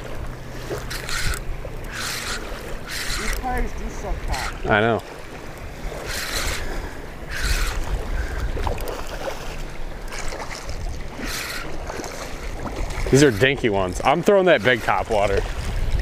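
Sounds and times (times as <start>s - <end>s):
hissing wind gusts: 0.0s - 16.0s
wind buffeting microphone: 0.0s - 16.0s.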